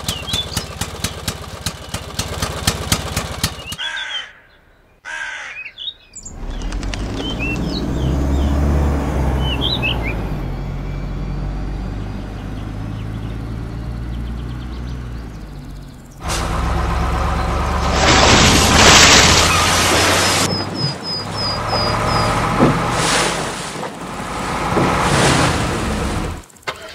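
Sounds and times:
birds chirping: 0.0 - 2.2, 3.3 - 16.2, 17.2 - 22.9
truck engine humming: 6.2 - 26.9.

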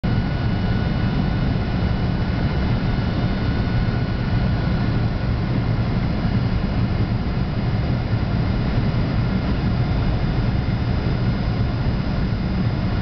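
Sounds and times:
jet engine and airflow drone: 0.0 - 13.0.

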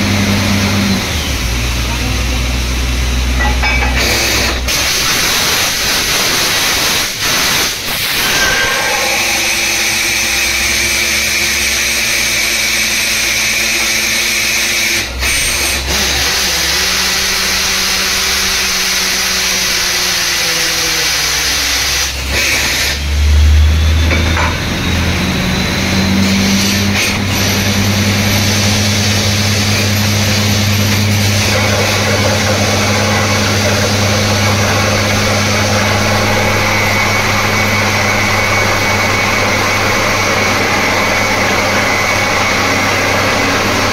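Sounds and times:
drilling rig engine: 0.0 - 43.9
loud low engine surge: 6.5 - 12.8.

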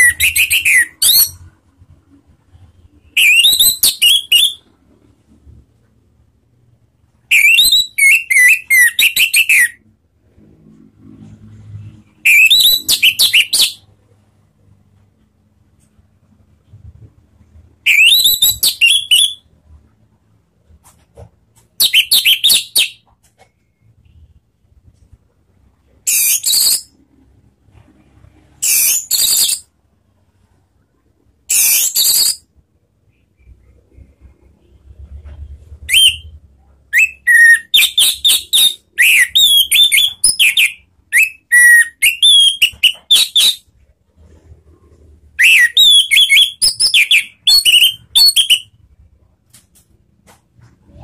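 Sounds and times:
thrush singing whistled notes: 0.0 - 1.5, 3.1 - 4.7, 7.3 - 9.8, 12.2 - 13.8, 17.9 - 19.5, 35.8 - 43.7, 45.4 - 48.8.

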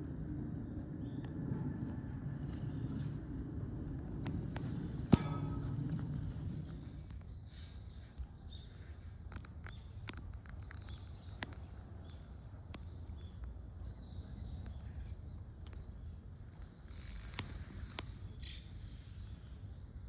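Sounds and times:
handling rumble: 0.0 - 7.4.

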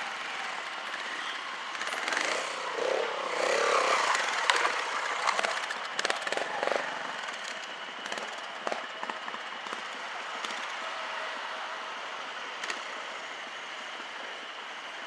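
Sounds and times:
motorcycle engine revving: 0.0 - 7.4.

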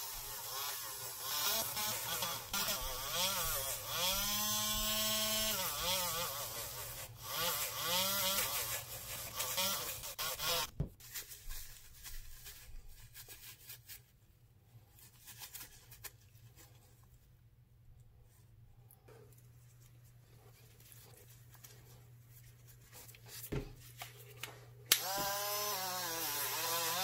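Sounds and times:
rotary tool motor whine: 0.0 - 10.7, 25.0 - 27.0
paper towel rubbing metal: 5.5 - 14.2.

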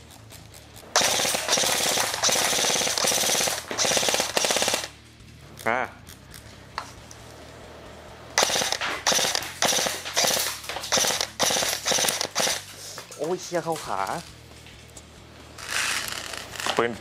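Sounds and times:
airsoft rifle firing bursts: 0.8 - 5.0, 8.4 - 12.8.

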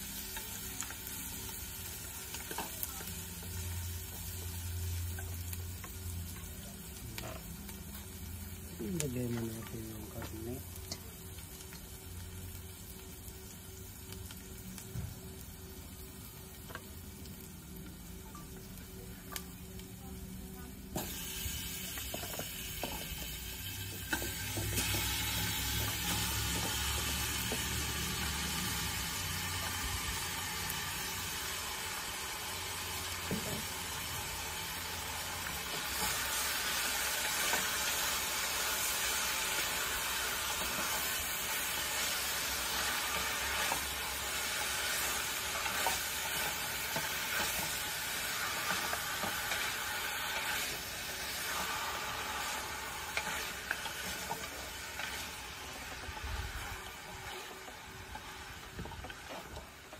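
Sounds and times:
meat sizzling in a pot: 0.0 - 59.9.

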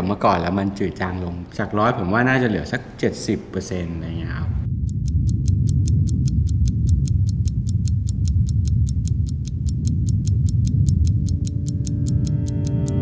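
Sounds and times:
low rumble: 4.1 - 13.0
rapid clock ticking: 4.6 - 13.0.

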